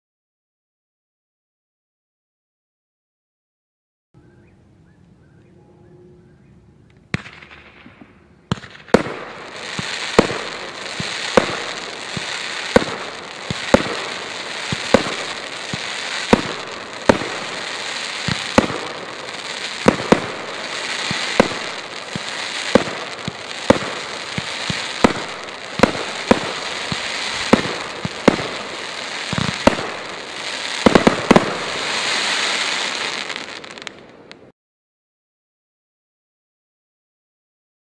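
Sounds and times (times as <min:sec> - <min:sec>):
firework reports: 0:07.1 - 0:34.3
firework stars crackling: 0:07.1 - 0:34.5.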